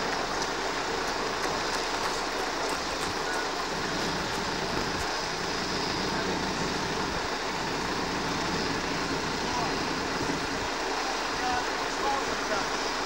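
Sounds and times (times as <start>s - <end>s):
diesel engine running: 0.0s - 11.9s.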